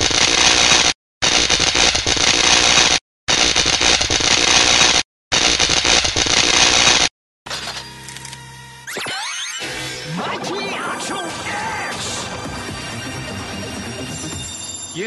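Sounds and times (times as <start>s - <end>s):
crackling static noise: 0.0s - 7.1s.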